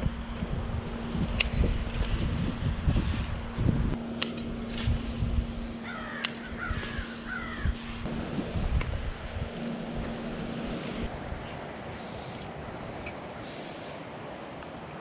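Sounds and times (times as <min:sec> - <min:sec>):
wind buffeting microphone: 0:00.0 - 0:14.2
crow cawing: 0:05.8 - 0:07.8.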